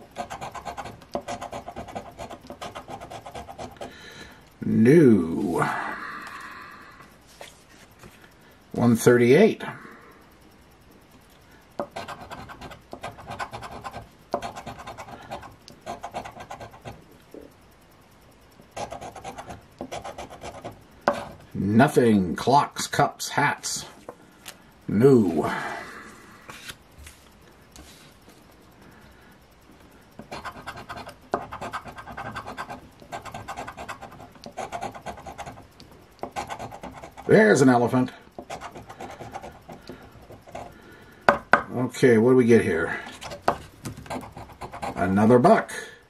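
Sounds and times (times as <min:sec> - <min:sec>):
coin scratching lottery ticket: 0:00.0 - 0:03.9, 0:11.8 - 0:17.0, 0:18.8 - 0:21.4, 0:30.2 - 0:40.8, 0:43.1 - 0:45.2.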